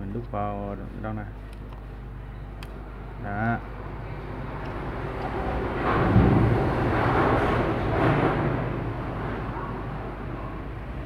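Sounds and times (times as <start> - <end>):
road vehicle passing: 3.7 - 11.0.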